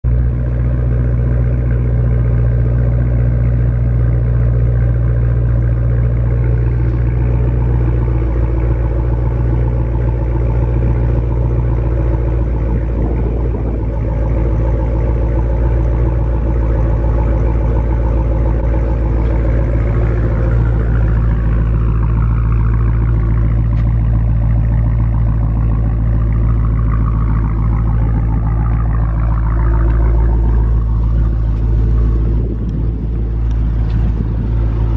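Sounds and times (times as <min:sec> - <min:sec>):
car engine idling: 0:00.0 - 0:34.9.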